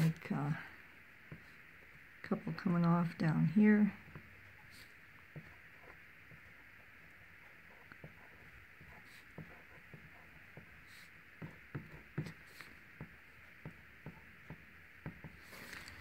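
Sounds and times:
faint hiss: 0:00.0 - 0:16.0
pen ticking and scratching on tile: 0:04.1 - 0:16.0.

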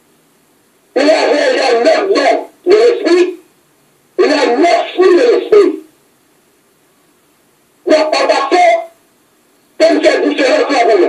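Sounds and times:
person speaking: 0:00.9 - 0:03.5, 0:04.2 - 0:05.9, 0:07.8 - 0:09.0, 0:09.8 - 0:11.0.

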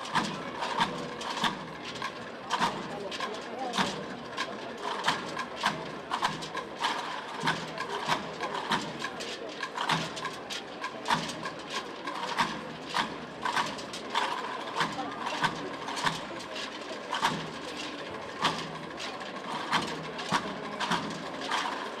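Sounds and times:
murmur of crowd voices: 0:00.0 - 0:22.0.

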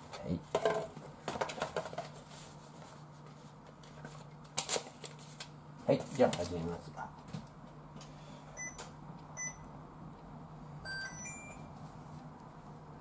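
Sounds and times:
steady low hum: 0:02.0 - 0:13.0
cooktop control panel beeps: 0:08.6 - 0:08.8, 0:09.4 - 0:09.7, 0:10.8 - 0:11.7.

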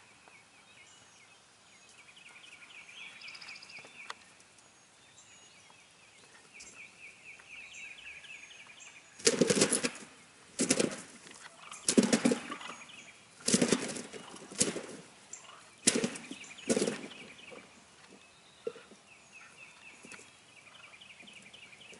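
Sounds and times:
songbird chirping high notes: 0:00.0 - 0:09.2
turkeys beating wings: 0:09.2 - 0:21.3.

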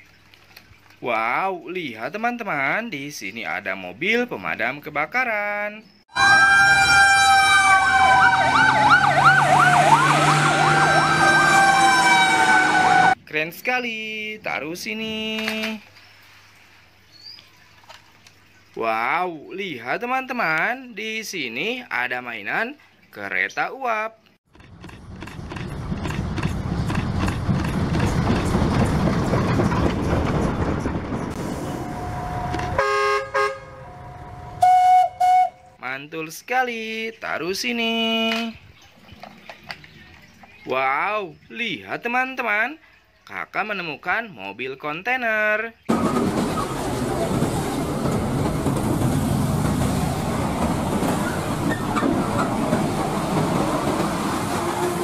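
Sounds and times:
locomotive whistle: 0:06.1 - 0:13.2, 0:31.4 - 0:35.8, 0:53.6 - 0:55.0
steam locomotive passing: 0:06.2 - 0:13.2, 0:25.5 - 0:35.5, 0:45.9 - 0:55.0
heavy road traffic rumble: 0:06.4 - 0:13.2, 0:24.5 - 0:35.3, 0:45.9 - 0:55.0.

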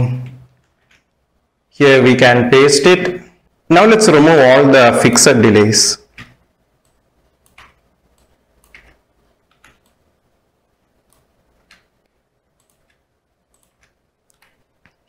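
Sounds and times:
computer keyboard clicks: 0:00.5 - 0:01.1, 0:06.1 - 0:10.0, 0:11.0 - 0:11.9, 0:12.6 - 0:15.0.

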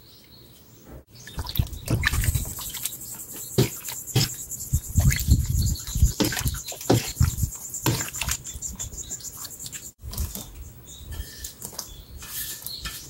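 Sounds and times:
ladle stirring liquid: 0:01.3 - 0:10.2.

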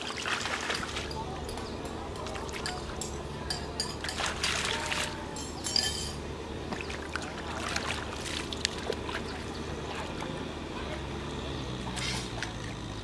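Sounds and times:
feet wading through shallow water: 0:00.0 - 0:03.3, 0:03.9 - 0:05.3, 0:06.5 - 0:11.1.

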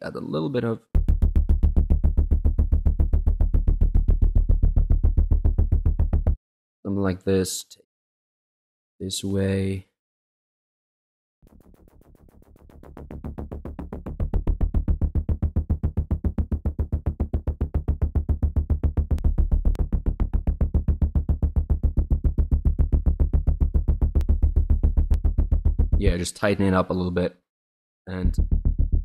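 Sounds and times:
pulsing distorted synth bass: 0:01.0 - 0:06.4, 0:11.4 - 0:26.6, 0:28.2 - 0:29.0.

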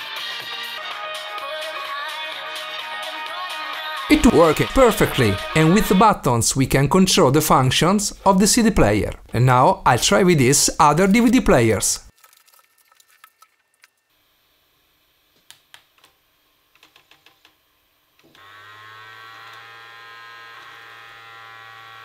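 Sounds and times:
disc drive motor whirring: 0:18.2 - 0:22.0.

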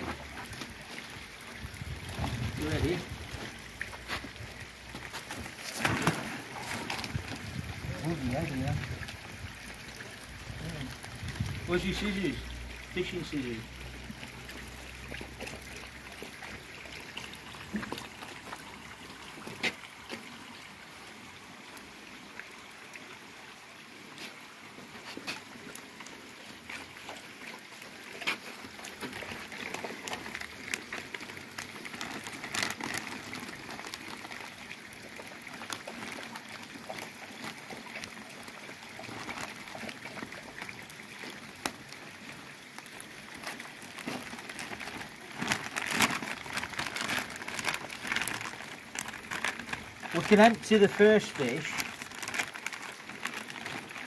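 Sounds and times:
water trickling into pond: 0:00.0 - 0:54.0
plastic bags crinkling: 0:29.0 - 0:34.4, 0:43.4 - 0:54.0.

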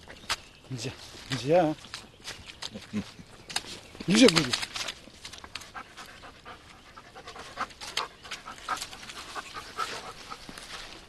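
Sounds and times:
dog panting: 0:05.6 - 0:11.0.

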